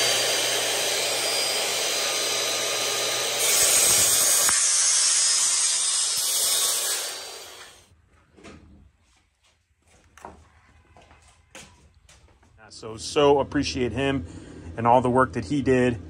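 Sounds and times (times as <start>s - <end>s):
circular saw cutting wood: 0.0s - 7.9s.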